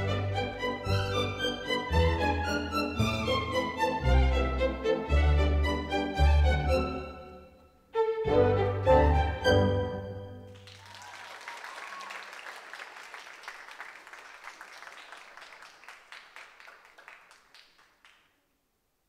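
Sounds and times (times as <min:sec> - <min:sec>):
orchestral chord: 0:08.0 - 0:10.5
audience applauding: 0:10.5 - 0:18.4.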